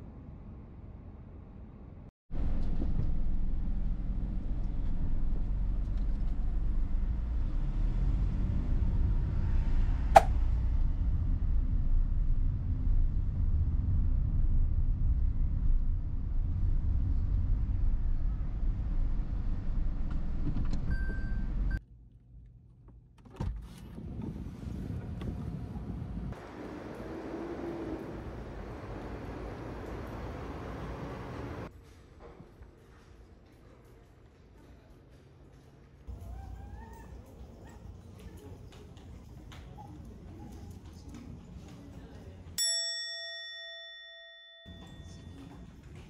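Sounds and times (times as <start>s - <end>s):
car road and engine rumble: 0.0s - 21.8s, 23.6s - 31.7s.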